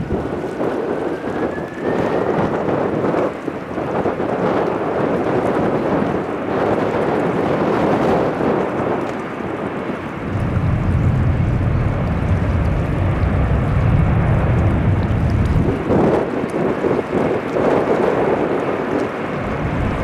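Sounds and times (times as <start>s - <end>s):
deep low rumble: 0.0s - 1.1s, 10.0s - 17.1s, 19.2s - 20.0s
jet engines roaring: 0.0s - 20.0s
wind buffeting microphone: 0.0s - 20.0s.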